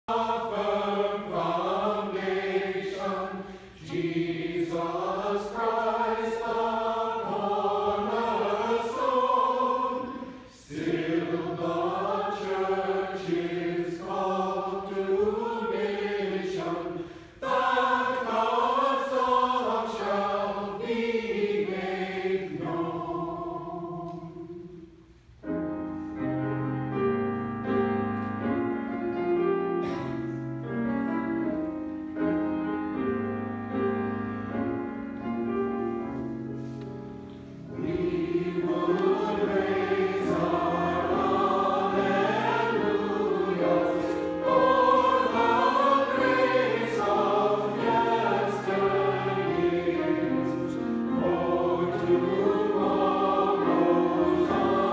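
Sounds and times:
choir singing a hymn: 0.1 - 30.8, 31.4 - 54.9
piano playing: 25.4 - 54.9.

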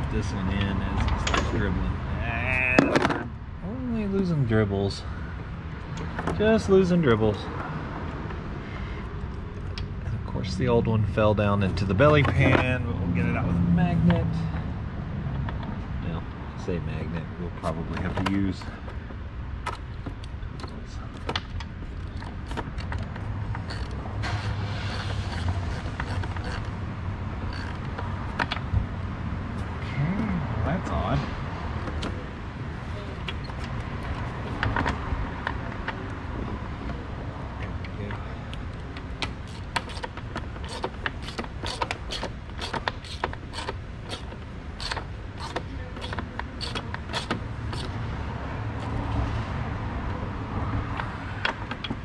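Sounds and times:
ratchet wrench clicking: 23.5 - 26.8, 27.4 - 28.6, 39.2 - 48.0.

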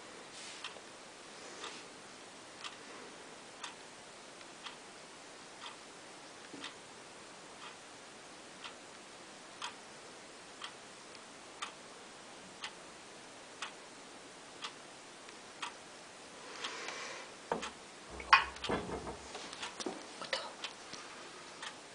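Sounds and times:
clock ticking: 3.5 - 3.8, 5.6 - 5.8, 6.6 - 6.8, 7.6 - 7.8, 8.6 - 8.8, 9.6 - 9.8, 10.6 - 10.8, 11.6 - 11.8, 13.6 - 13.8, 14.6 - 14.9, 15.6 - 15.8, 17.5 - 20.8
knocks and clicks of handling: 17.5 - 20.1.

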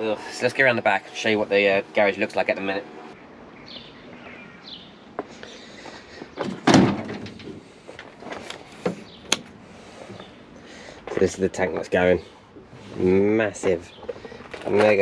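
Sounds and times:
van door clunk: 6.4 - 7.6.

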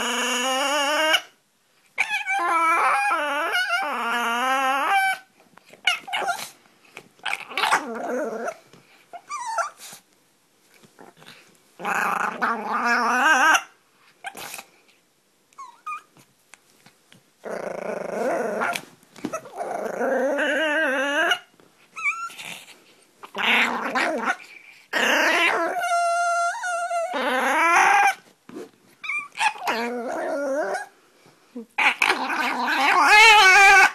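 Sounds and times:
puppy play-growling: 0.0 - 1.4, 2.0 - 10.0, 10.7 - 14.8, 15.6 - 31.0, 31.6 - 33.9
puppy yips and squeaks: 2.0 - 3.9, 4.9 - 6.6, 9.1 - 10.0, 15.6 - 16.1, 21.2 - 22.6, 25.4 - 28.2, 29.0 - 29.9.

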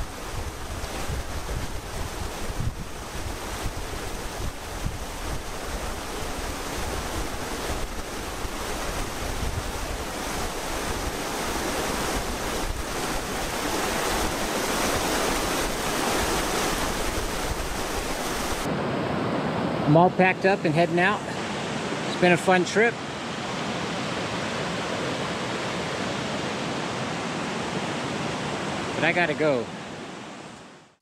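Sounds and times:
wind buffeting microphone: 0.0 - 18.7.

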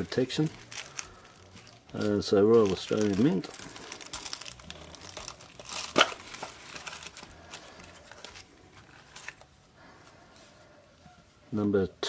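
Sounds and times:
sharp paper crackle: 0.0 - 9.5
tissue paper rustling: 0.0 - 11.4.

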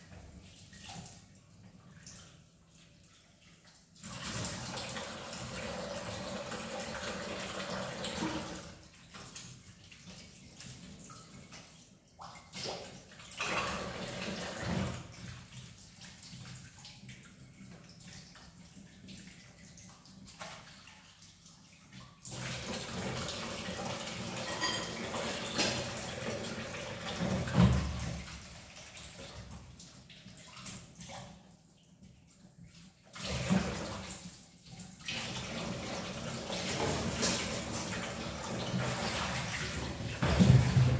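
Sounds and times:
dishes and cups clinking: 24.4 - 25.8
tap running into sink: 39.6 - 40.9.

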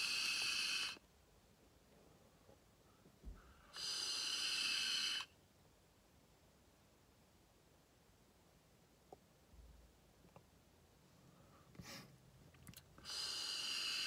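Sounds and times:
hiss of air through vape: 0.0 - 1.0, 3.8 - 5.3, 13.0 - 14.0.

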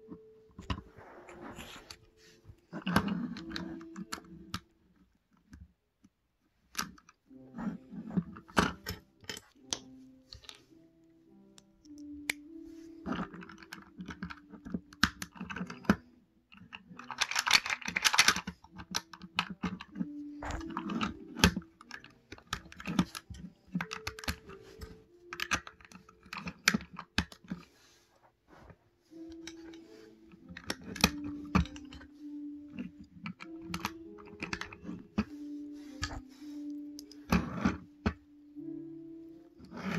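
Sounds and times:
plastic bricks clicking and rattling: 2.7 - 4.7, 13.0 - 27.7, 29.1 - 35.4.

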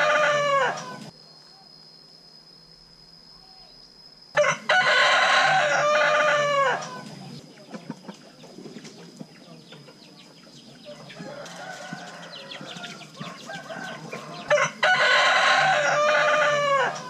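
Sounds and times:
rooster crowing: 0.0 - 1.1, 4.4 - 7.2, 10.8 - 17.0.

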